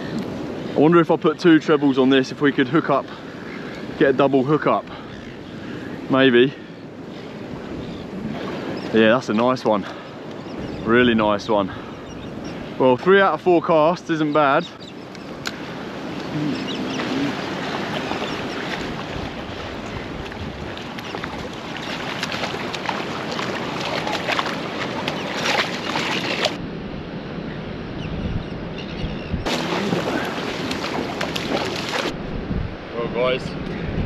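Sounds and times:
surf washing over rocks: 12.5s - 26.6s, 29.4s - 32.2s
wind on microphone: 15.2s - 34.0s
splashing in shallows: 16.2s - 26.6s, 29.5s - 32.1s.

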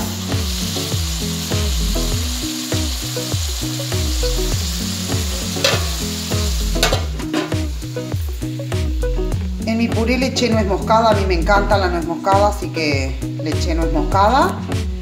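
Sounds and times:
eggplant sizzling in oil: 0.0s - 11.0s
background music with bass line: 0.0s - 15.0s
metal lid clinking: 5.5s - 6.1s, 6.8s - 7.7s.

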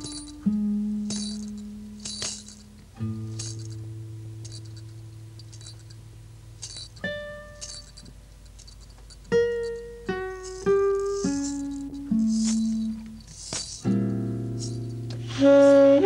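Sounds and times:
sparse instrumental music: 0.0s - 16.0s
faint high hissy swishes: 10.4s - 15.8s.

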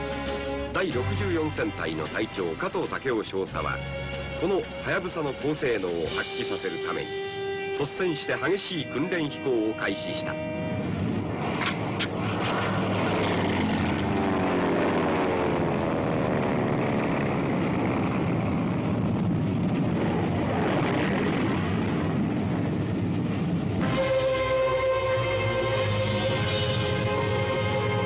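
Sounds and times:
music: 0.0s - 11.2s, 23.8s - 28.0s
propeller planes droning past: 0.0s - 28.0s.

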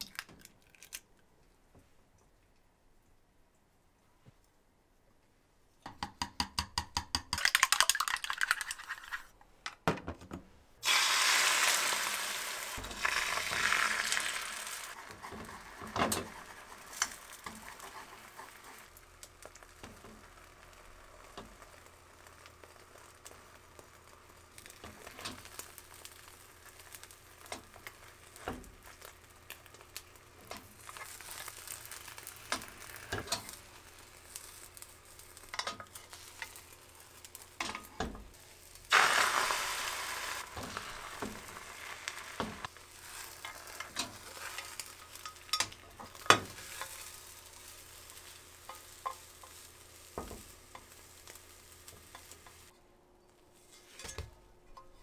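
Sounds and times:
chopsticks tapping on pan: 5.8s - 7.5s
egg sizzling in hot pan: 7.4s - 9.3s, 10.8s - 52.7s
chopsticks beating eggs: 15.0s - 18.9s.

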